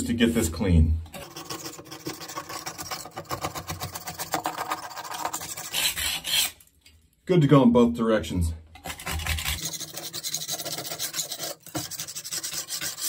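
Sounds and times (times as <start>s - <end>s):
putty knife scraping wall: 1.1s - 6.6s, 8.8s - 13.0s.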